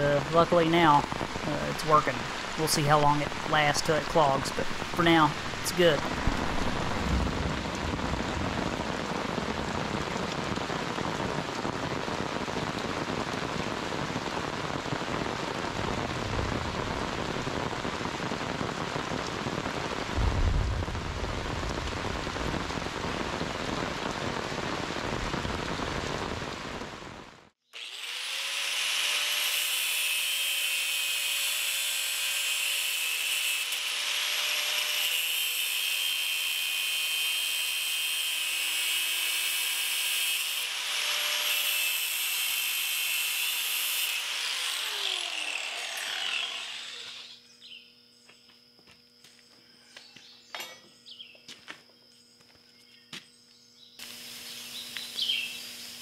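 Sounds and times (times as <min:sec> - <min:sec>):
rain hissing on creek bed: 0:00.0 - 0:27.6, 0:54.0 - 0:56.0
low rumble: 0:04.8 - 0:10.3, 0:20.1 - 0:23.6
angle grinder whining: 0:27.8 - 0:47.4.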